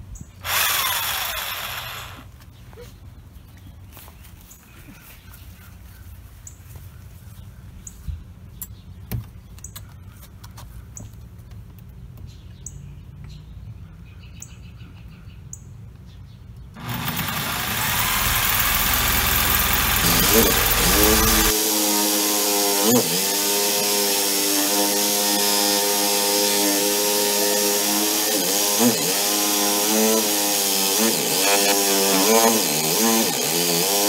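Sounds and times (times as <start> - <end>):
reciprocating saw cutting metal: 0.4 - 2.3, 16.8 - 34.0
bird chirping: 12.2 - 16.8.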